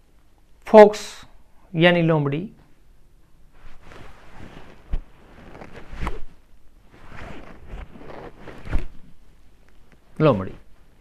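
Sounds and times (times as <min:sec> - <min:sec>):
jacket rustling: 0:03.5 - 0:10.8.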